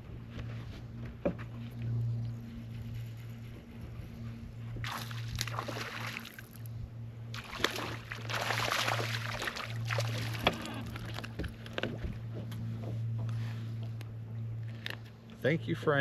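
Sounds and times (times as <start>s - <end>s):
steady low hum: 0.0s - 16.0s
water splashing beside boat: 4.8s - 12.2s.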